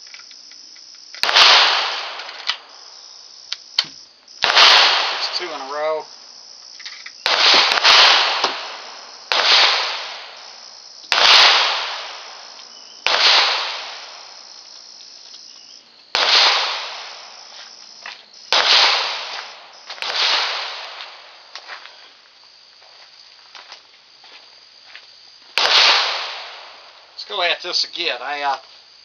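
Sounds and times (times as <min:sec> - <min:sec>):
gunshots: 0:01.2 - 0:02.8, 0:03.8 - 0:06.0, 0:07.2 - 0:14.5, 0:16.1 - 0:17.6, 0:18.5 - 0:21.4, 0:25.6 - 0:26.9.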